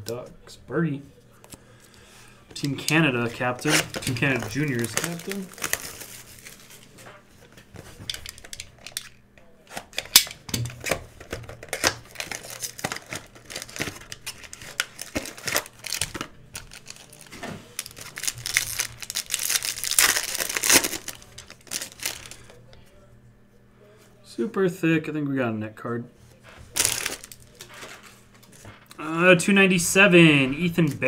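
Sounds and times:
foil wrapper crinkling: 2.6 - 7.0, 9.9 - 22.6, 26.7 - 28.2
foil tearing: 2.9 - 6.8, 11.6 - 22.4, 26.7 - 28.1.

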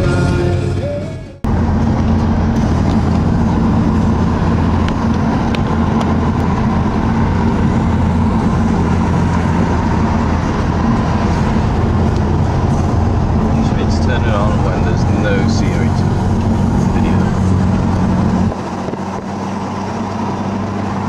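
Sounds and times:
car engine and road hum: 0.0 - 21.0.

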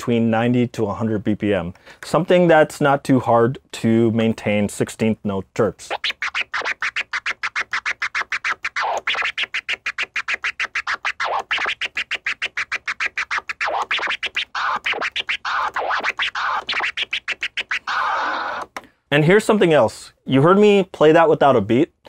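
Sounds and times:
turntable scratching: 4.4 - 18.8.

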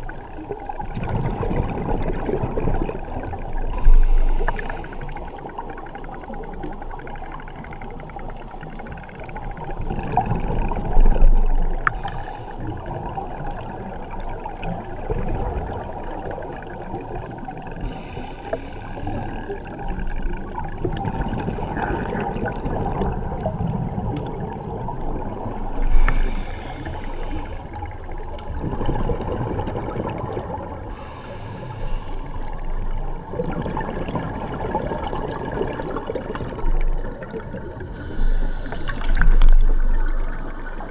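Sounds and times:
exhaled air bubbling: 0.0 - 40.9
regulator hiss underwater: 3.6 - 5.6, 11.8 - 13.0, 17.8 - 19.6, 25.7 - 27.9, 30.9 - 32.6, 37.8 - 40.3.

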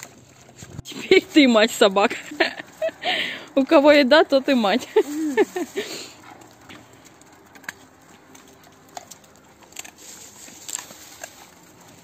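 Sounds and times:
dog claws clicking on asphalt: 6.2 - 12.0.

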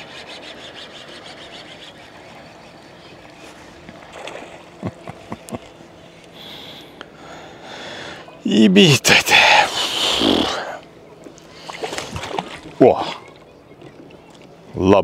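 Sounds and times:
water sloshing: 0.0 - 6.3, 10.8 - 14.8.

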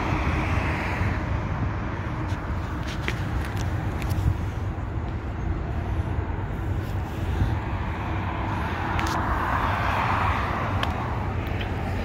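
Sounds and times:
road traffic rumble: 0.0 - 12.0
vehicle passing: 5.6 - 12.0.

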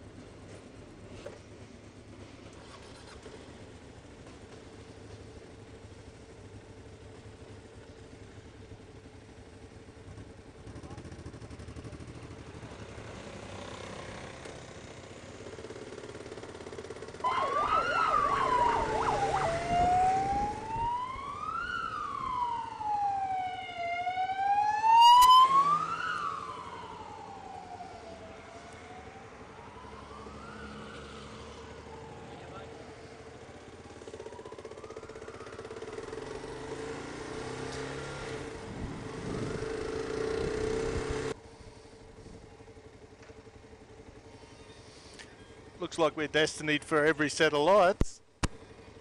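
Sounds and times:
motorcycles running: 0.0 - 24.1, 29.0 - 49.0
emergency vehicle siren: 16.9 - 40.4, 44.0 - 45.7.

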